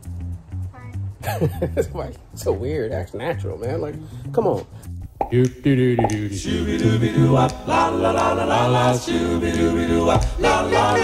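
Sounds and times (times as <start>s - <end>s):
voices singing chords a cappella: 5.2s - 11.0s.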